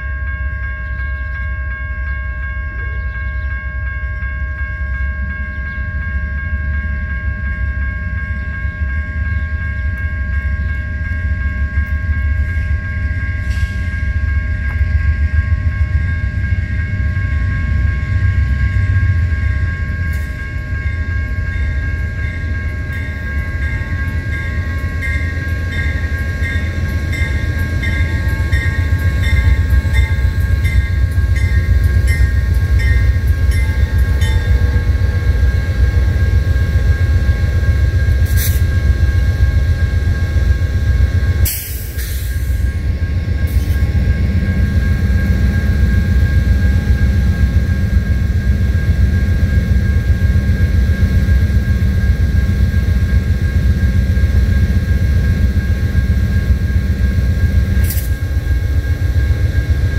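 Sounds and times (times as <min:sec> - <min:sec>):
electronic crossing bell dinging: 0:00.0 - 0:37.9
diesel locomotive rumbling: 0:00.0 - 0:59.9.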